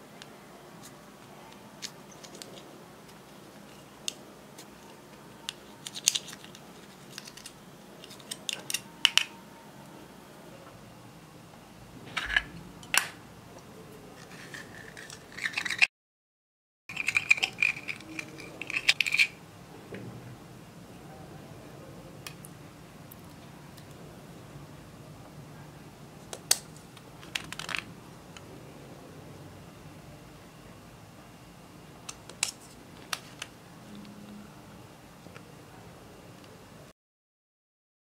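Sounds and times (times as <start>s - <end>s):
spatula scraping eyeshadow: 14.2s - 15.9s, 16.9s - 19.4s.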